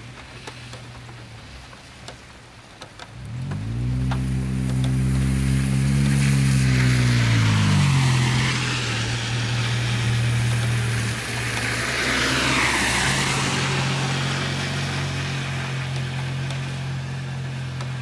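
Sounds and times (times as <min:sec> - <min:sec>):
rain on water: 0:00.0 - 0:18.0
motor engine running: 0:03.2 - 0:08.0.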